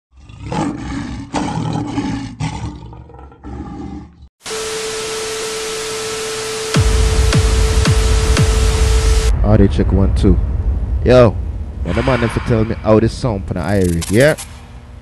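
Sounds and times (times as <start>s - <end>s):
rough pulsing roar: 0.1s - 4.2s
static hiss: 4.4s - 9.3s
steady tone: 4.5s - 9.5s, 10.3s - 13.8s.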